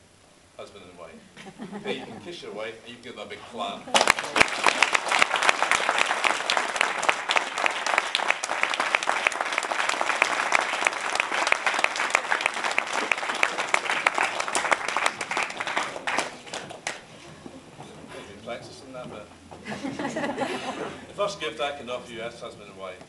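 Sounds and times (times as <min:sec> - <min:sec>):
crowd applauding: 0:03.9 - 0:17.1.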